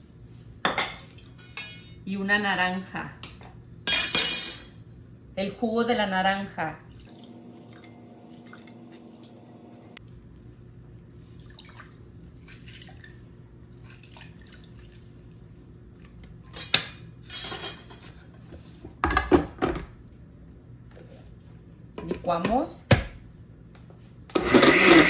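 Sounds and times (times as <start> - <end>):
juice dripping into glass jar: 6.9 - 10.0.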